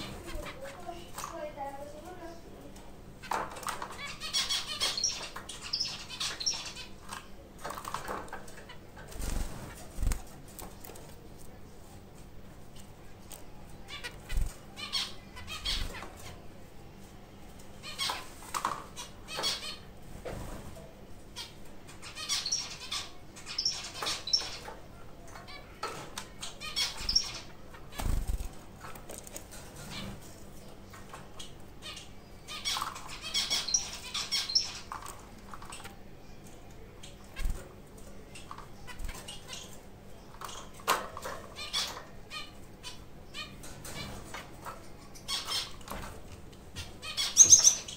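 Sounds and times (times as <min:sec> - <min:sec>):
birds scratching and fluttering in cage: 0:00.0 - 0:47.9
finches chirping: 0:03.2 - 0:11.2, 0:12.8 - 0:16.5, 0:17.8 - 0:19.9, 0:21.3 - 0:46.1, 0:46.8 - 0:47.9
bird wing flapping: 0:09.1 - 0:10.8, 0:27.9 - 0:28.6.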